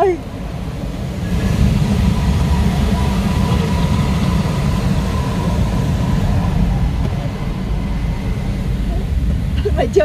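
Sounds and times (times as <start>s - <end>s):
air rushing past cockpit: 0.0s - 10.0s.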